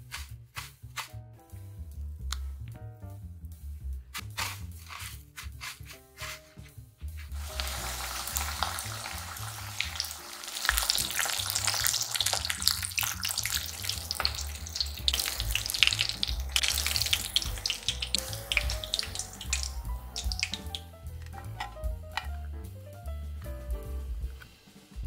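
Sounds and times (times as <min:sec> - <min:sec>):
fish deep-frying in oil: 0:07.4 - 0:20.8.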